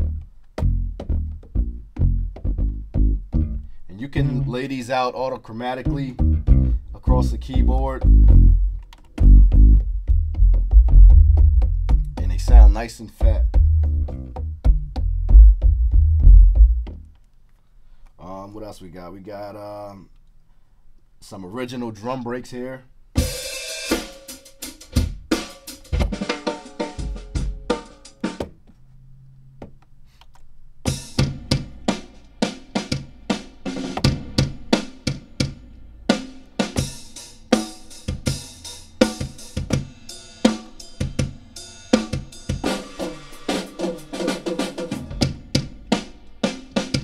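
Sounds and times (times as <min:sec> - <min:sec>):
drum break loops: 0:00.0 - 0:04.8, 0:05.8 - 0:17.0, 0:23.2 - 0:28.5, 0:30.9 - 0:47.0.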